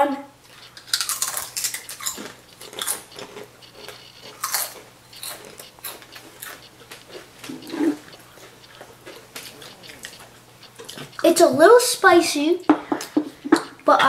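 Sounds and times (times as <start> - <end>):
children chewing potato chips: 0.0 - 14.0.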